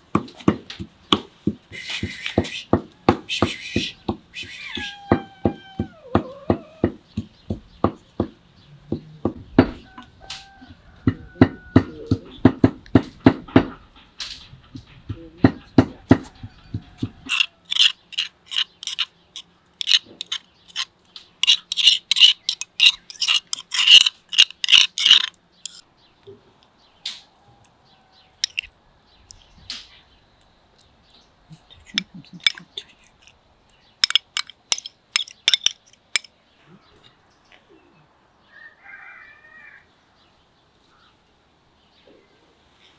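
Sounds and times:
pestle pounding in stone mortar: 0.1 - 9.8, 11.1 - 13.8
metal spoon scraping stone mortar: 17.3 - 25.8, 28.4 - 28.7, 32.0 - 33.4, 34.0 - 36.3.

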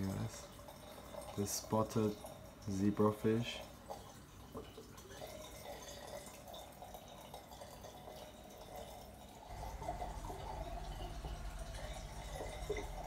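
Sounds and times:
water trickling and dripping: 0.0 - 13.0
steady low hum: 9.4 - 13.0.

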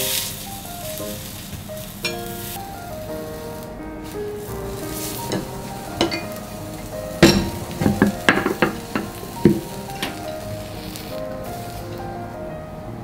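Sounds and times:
faint sizzling omelette: 0.0 - 12.9
quiet background music: 0.0 - 13.0
chopsticks tapping frying pan: 1.0 - 2.6, 4.4 - 12.1.

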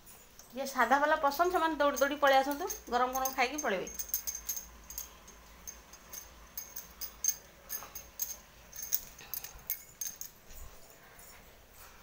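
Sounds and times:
light clicks and clinks: 0.0 - 12.0
low steady hum: 0.0 - 12.0.

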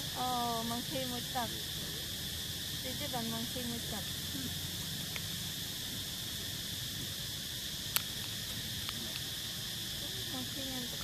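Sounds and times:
high insect drone: 0.0 - 11.0
faint ticks: 5.1 - 5.4, 7.9 - 9.3.

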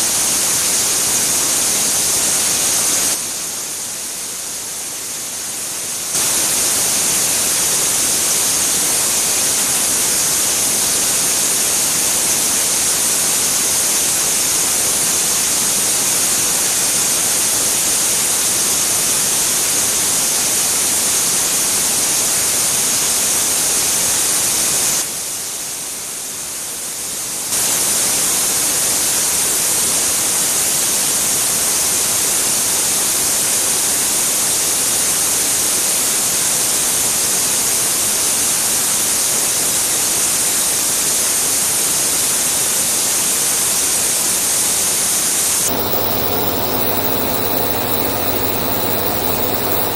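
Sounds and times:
milling machine cutting steel: 45.7 - 49.9.

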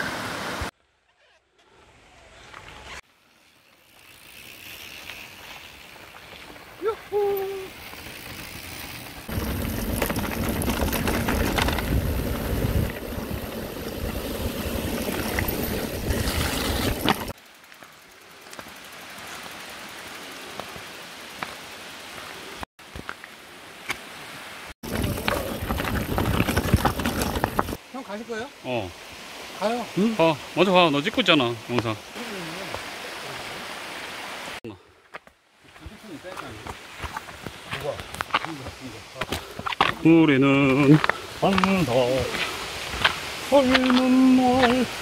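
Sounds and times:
tyres crunching on gravel: 2.5 - 19.7, 24.8 - 27.8, 35.6 - 45.0
wind noise: 6.3 - 17.3, 24.8 - 27.8.

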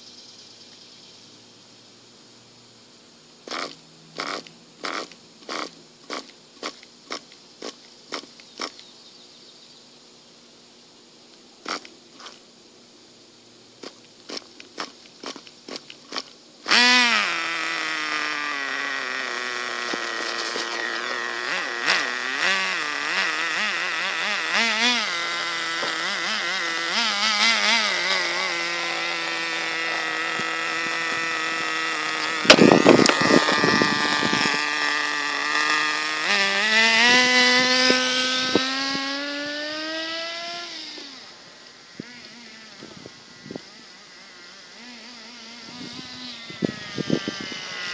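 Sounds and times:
small engine high buzzing: 2.5 - 9.2, 11.5 - 47.9
engine starting clicks: 3.5 - 8.8.

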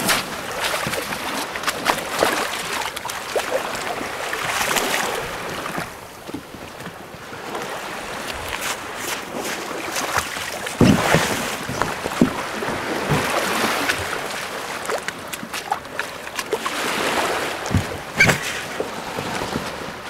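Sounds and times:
water splashing against boat hull: 0.0 - 20.0
dull knocks: 10.8 - 13.4, 17.6 - 18.7.

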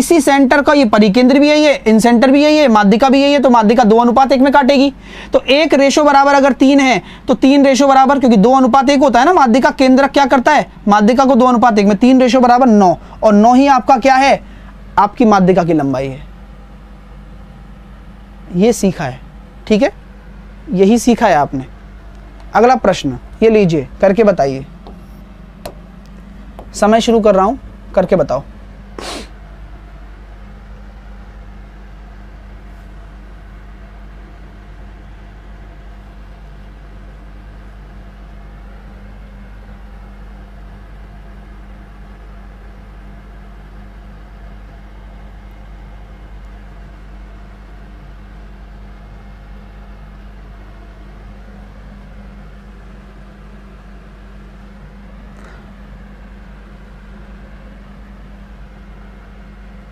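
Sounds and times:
low electrical hum: 0.0 - 59.9
steady hiss: 28.9 - 29.4.

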